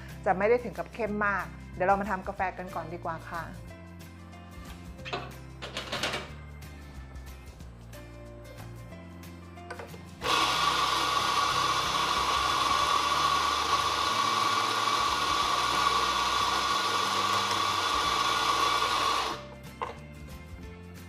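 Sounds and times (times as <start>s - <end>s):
coffee grinder grinding with whine: 10.2s - 19.4s.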